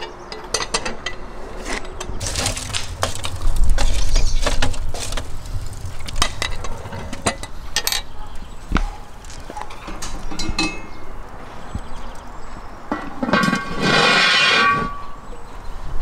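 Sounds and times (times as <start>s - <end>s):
low rumble: 2.2s - 7.6s.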